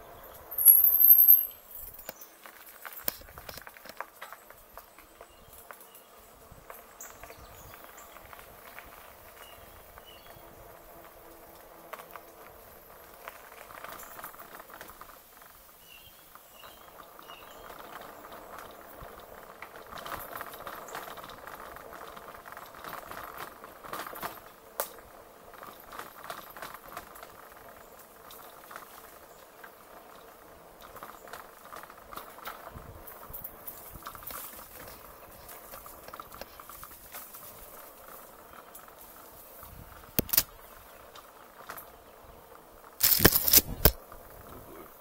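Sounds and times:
bike tyres rolling over rough trail: 0:00.0 - 0:45.0
sharp clicks: 0:40.2 - 0:40.5.

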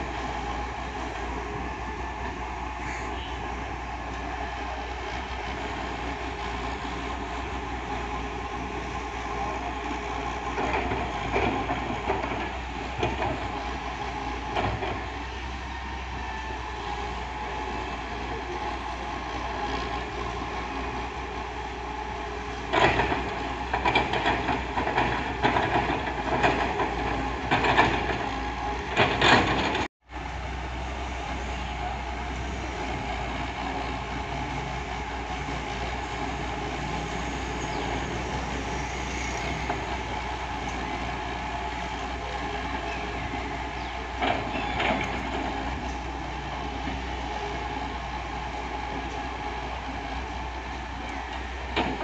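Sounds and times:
diesel engine running: 0:00.0 - 0:52.0.

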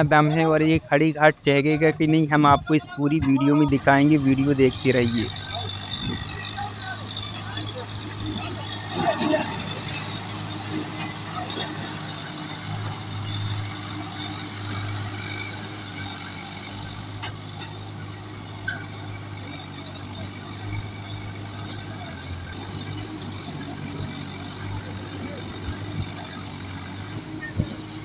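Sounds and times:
tractor diesel engine under load: 0:00.0 - 0:28.0.

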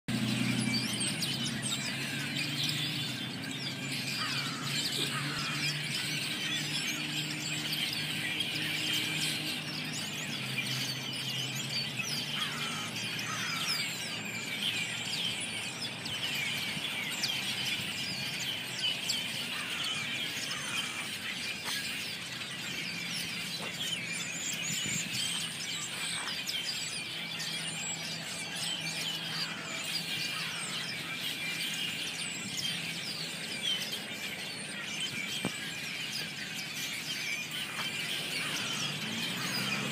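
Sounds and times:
flock of blackbirds chattering: 0:00.1 - 0:39.9.

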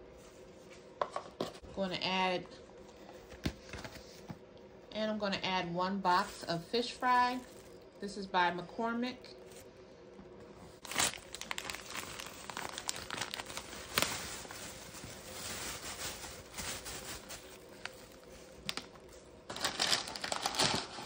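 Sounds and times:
packaging crinkling and tearing: 0:10.8 - 0:21.0.

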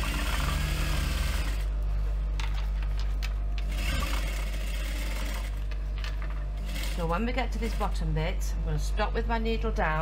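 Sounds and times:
sewing machine motor humming: 0:00.0 - 0:01.8, 0:03.6 - 0:05.7, 0:06.6 - 0:08.1.

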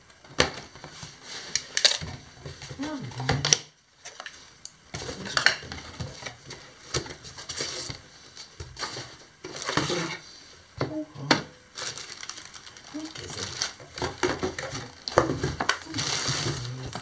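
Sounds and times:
packaging rustle: 0:11.7 - 0:17.0.

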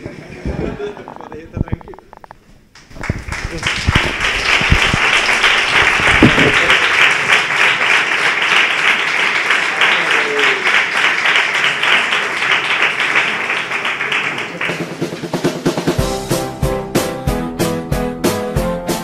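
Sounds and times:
audience applauding: 0:02.8 - 0:15.7.

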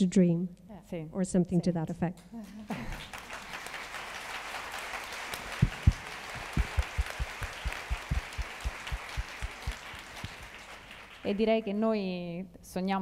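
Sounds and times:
audience applauding: 0:02.8 - 0:11.6
heavy close claps: 0:04.5 - 0:11.3.

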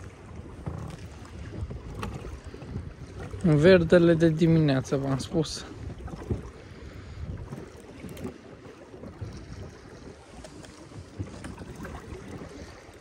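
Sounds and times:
wind rushing over microphone: 0:00.0 - 0:08.3
water lapping against boat: 0:00.0 - 0:13.0.

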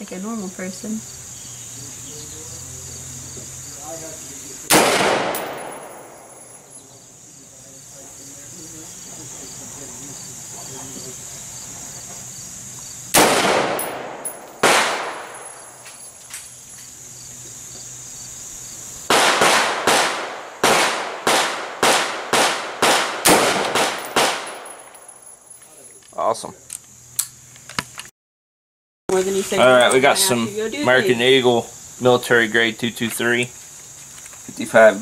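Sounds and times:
gunshot echo ringing: 0:04.7 - 0:06.7, 0:13.2 - 0:15.8, 0:19.1 - 0:25.1
rifle shots: 0:04.7 - 0:06.7, 0:13.1 - 0:15.8, 0:19.1 - 0:25.1.

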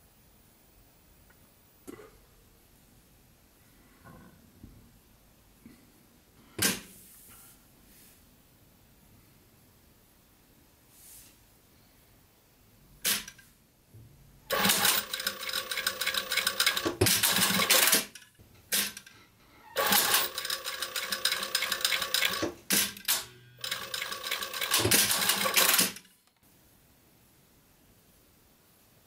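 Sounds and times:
sewing machine stitching: 0:14.5 - 0:19.1, 0:19.8 - 0:26.1.

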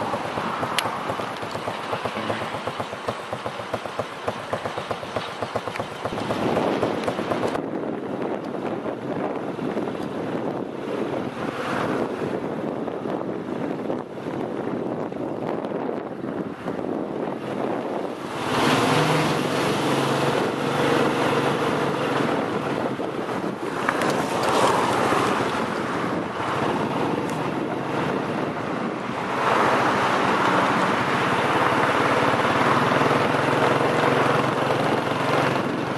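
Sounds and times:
wind buffeting microphone: 0:00.0 - 0:35.9.

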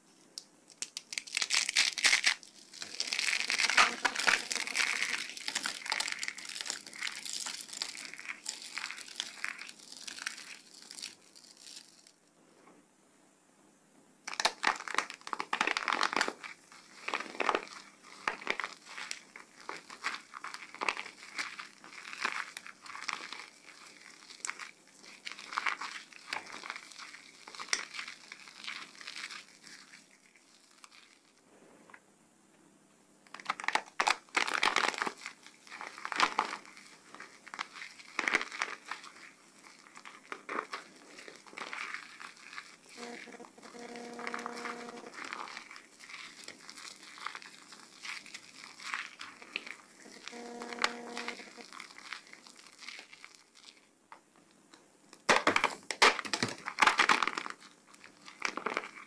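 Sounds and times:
soap crackling between hands: 0:00.0 - 0:12.2, 0:14.2 - 0:31.4, 0:33.2 - 0:59.0.

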